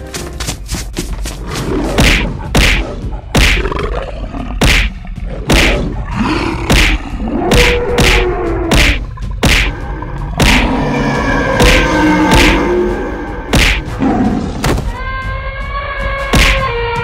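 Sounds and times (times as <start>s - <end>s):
animal roars and growls: 1.4s - 14.6s.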